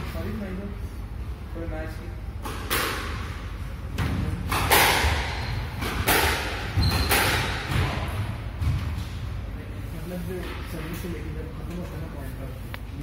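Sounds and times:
squash ball struck by rackets: 3.9s - 9.0s.

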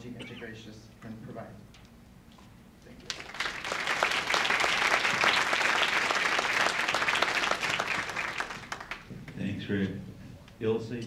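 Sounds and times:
audience applauding: 3.0s - 9.1s.

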